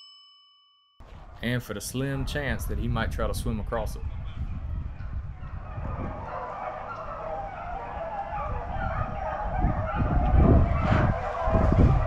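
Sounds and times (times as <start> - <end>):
hounds baying and yelping: 4.2 - 12.0.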